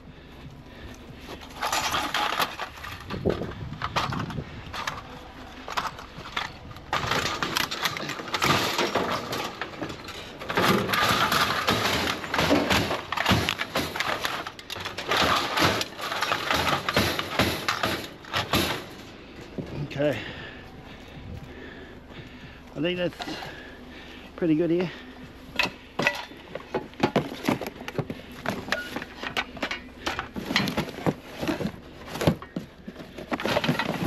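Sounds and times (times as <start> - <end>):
scrap metal clanking and rattling: 0.1 - 34.0.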